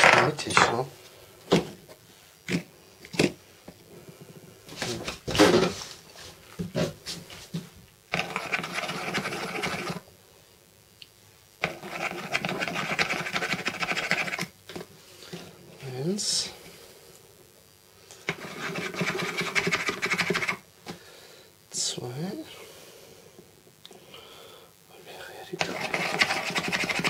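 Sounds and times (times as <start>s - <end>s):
pencil scratching on plastic: 8.1s - 10.0s, 11.6s - 14.5s, 18.3s - 20.6s, 25.6s - 27.0s.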